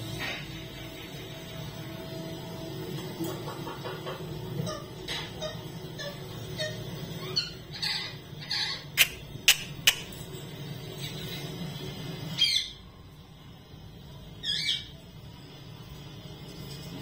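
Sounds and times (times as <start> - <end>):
parakeet calling: 3.6 - 10.2, 12.3 - 12.8, 14.4 - 15.1.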